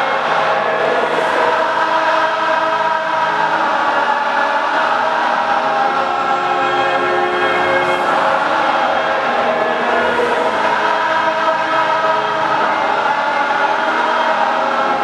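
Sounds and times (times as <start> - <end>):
crowd chanting in unison: 0.0 - 15.0.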